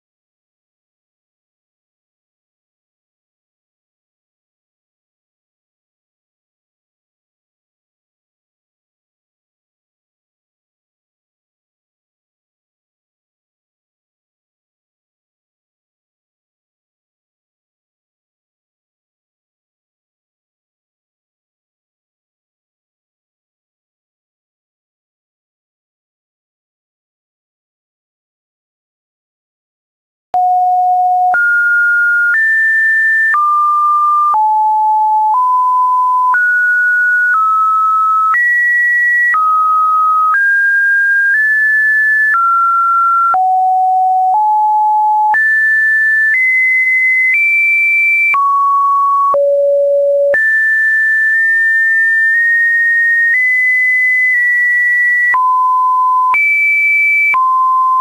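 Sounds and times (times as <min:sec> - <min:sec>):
electronic beeps at varying pitch: 0:30.4 - 0:58.0.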